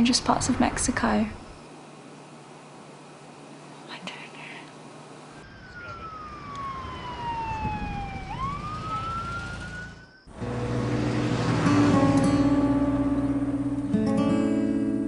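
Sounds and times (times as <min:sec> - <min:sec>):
siren wailing: 0:05.4 - 0:12.4
acoustic guitar music: 0:10.4 - 0:15.0.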